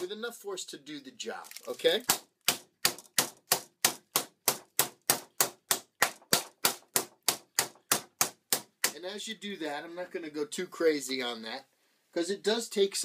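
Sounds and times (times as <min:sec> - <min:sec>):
meat mallet pounding meat: 0:02.0 - 0:09.1.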